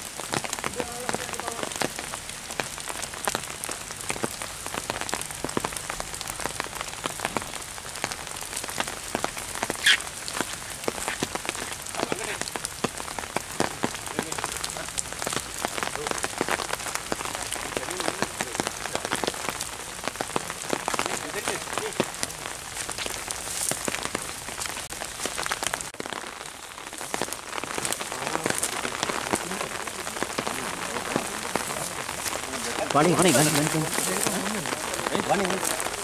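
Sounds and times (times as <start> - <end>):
rain on foliage: 0.0 - 36.0
high squeal falling in pitch: 9.8 - 10.0.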